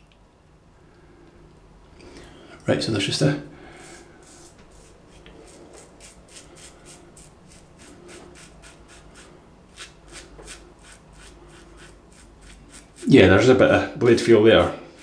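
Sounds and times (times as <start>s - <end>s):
razor scraping stubble: 3.8s - 13.2s, 14.0s - 15.0s.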